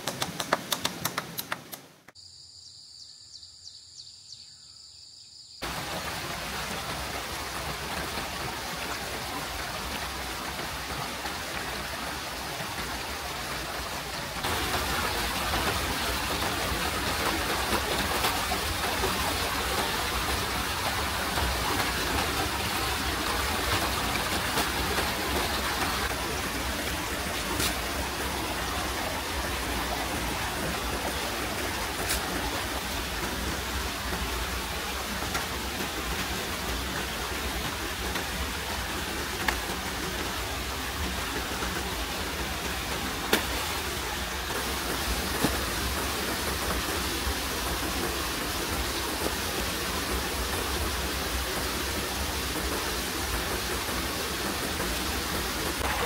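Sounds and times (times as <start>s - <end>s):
rapid taps: 0.0s - 2.2s
heavy rain pouring: 5.6s - 56.0s.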